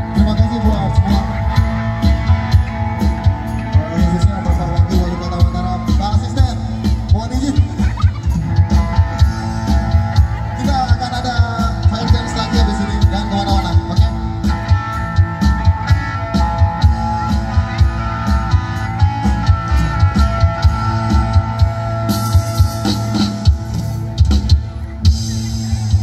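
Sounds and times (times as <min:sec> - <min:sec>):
band music with drum beat: 0:00.0 - 0:26.0.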